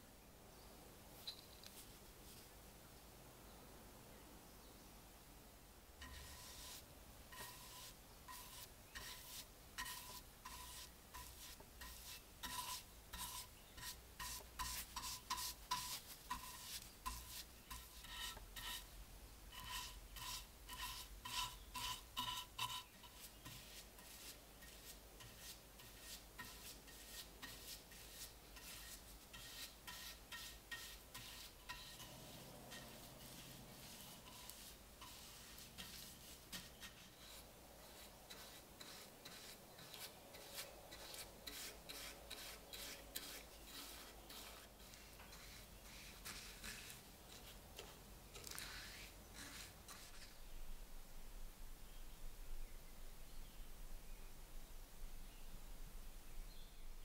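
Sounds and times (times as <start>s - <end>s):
paintbrush strokes on wood: 6.0s - 50.5s.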